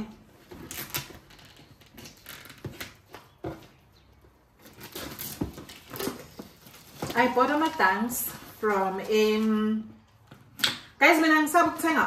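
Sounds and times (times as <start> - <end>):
plastic wrapping crinkling: 4.5 - 9.9.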